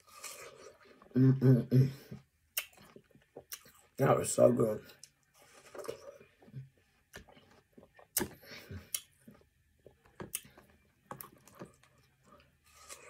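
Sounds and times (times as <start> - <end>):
chewing watermelon: 2.5 - 4.0, 4.9 - 13.0.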